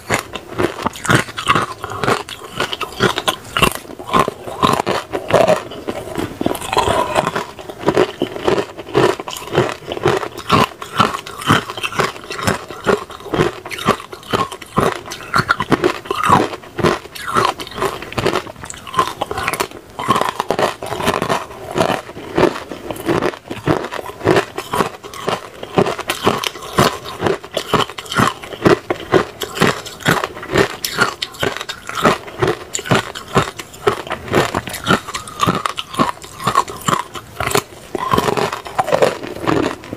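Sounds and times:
ice cubes crunched between teeth: 0:00.0 - 0:39.9.

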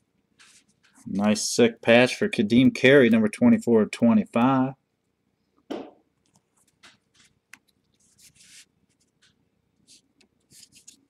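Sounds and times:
cards sliding and scraping: 0:00.4 - 0:01.0, 0:08.0 - 0:08.7, 0:09.9 - 0:11.0.

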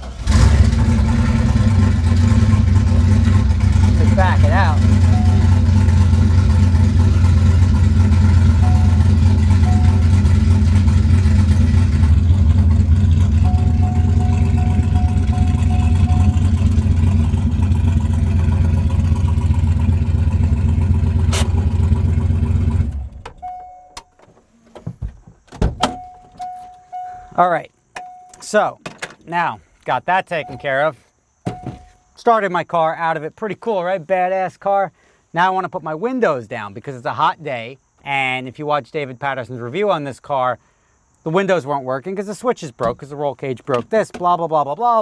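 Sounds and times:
race car engine idling: 0:00.3 - 0:23.1.

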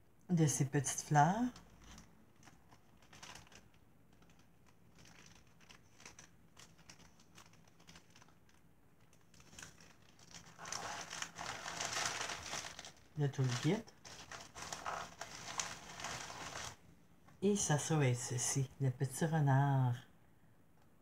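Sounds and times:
plastic packets ticking and rustling: 0:01.2 - 0:16.8
plastic bag crinkling: 0:01.3 - 0:16.8.

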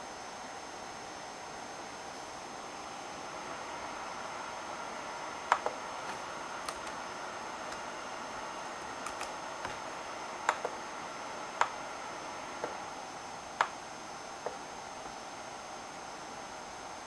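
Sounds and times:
faint high whine: 0:00.0 - 0:17.0
steady hiss: 0:00.0 - 0:17.0
touchpad buttons clicking: 0:05.5 - 0:07.0, 0:08.8 - 0:09.8.

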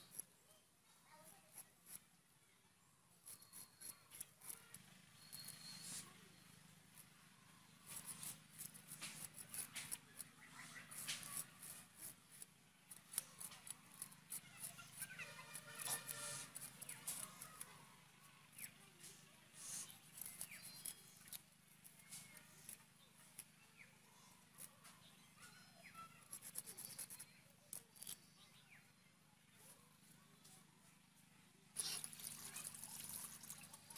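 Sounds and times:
bird chirps: 0:03.2 - 0:06.5, 0:19.6 - 0:21.4
fish scraped against blade: 0:13.1 - 0:17.7, 0:31.8 - 0:33.6.

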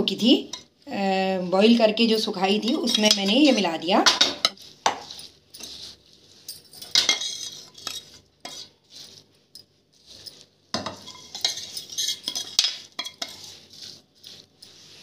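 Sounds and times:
metal spoon scraping ceramic bowl: 0:01.7 - 0:15.0
scraping metal pan: 0:01.7 - 0:15.0.

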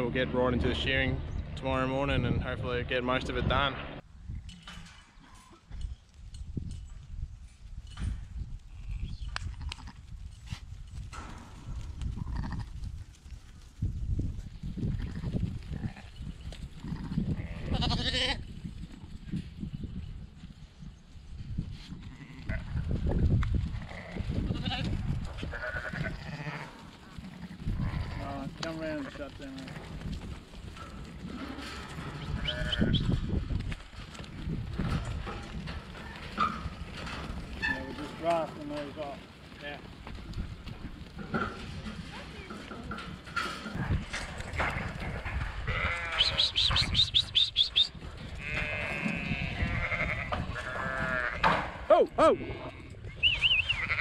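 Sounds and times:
low rumbling noise: 0:00.0 - 0:04.0
sheep bleating: 0:16.8 - 0:18.4, 0:22.0 - 0:22.8, 0:23.8 - 0:29.9, 0:31.9 - 0:33.2, 0:44.4 - 0:47.0, 0:48.3 - 0:51.5, 0:52.2 - 0:53.0, 0:53.6 - 0:54.0.

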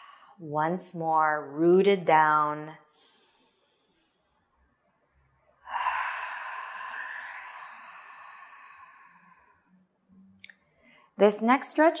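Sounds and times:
breathy exhale hiss: 0:05.7 - 0:09.4.

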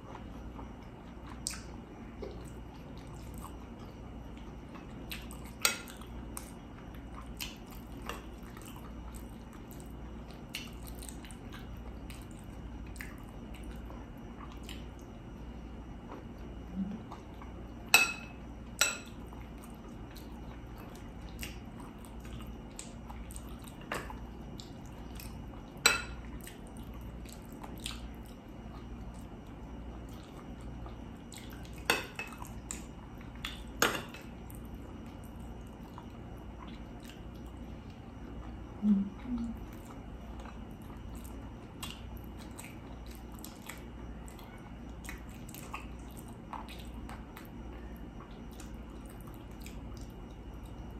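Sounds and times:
faint eating sounds: 0:00.0 - 0:50.9
cutlery clinking against dish: 0:18.0 - 0:19.1.

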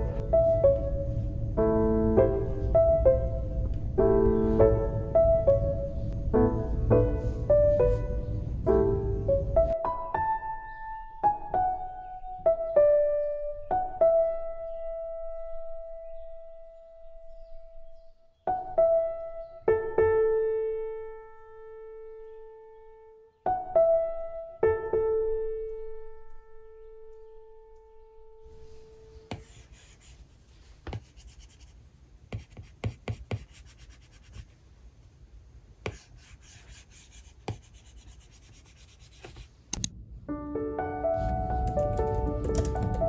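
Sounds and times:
soft piano notes: 0:00.0 - 0:30.1, 0:39.8 - 0:43.0.

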